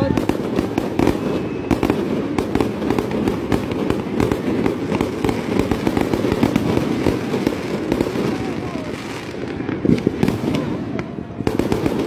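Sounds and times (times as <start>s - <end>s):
fireworks bangs and crackles: 0.0s - 12.0s.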